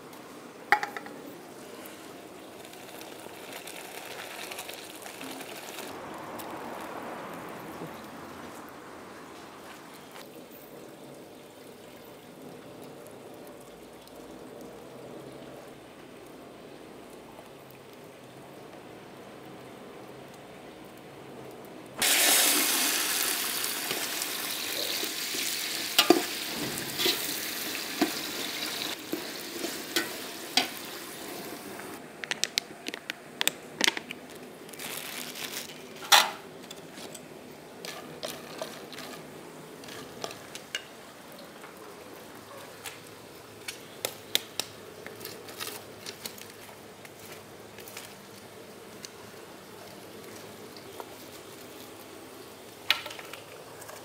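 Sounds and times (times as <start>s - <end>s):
food sizzling in hot oil: 2.5s - 6.0s, 22.0s - 32.0s
utensil scraping a pan: 26.0s - 27.4s, 37.8s - 40.6s.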